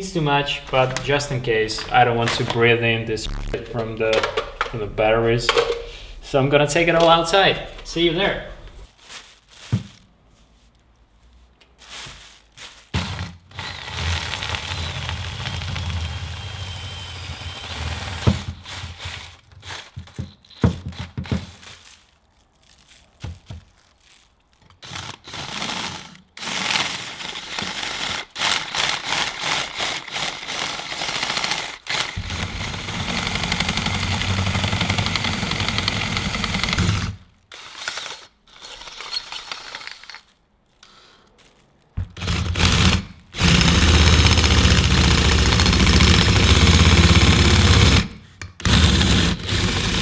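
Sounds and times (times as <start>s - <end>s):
power drill boring: 13.0s - 19.4s, 31.2s - 40.0s, 42.2s - 50.0s.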